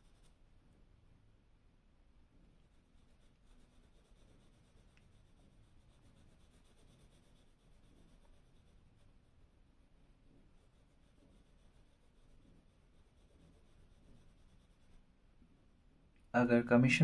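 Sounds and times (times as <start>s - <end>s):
pencil scratching on paper: 0.0s - 0.4s, 2.4s - 15.1s.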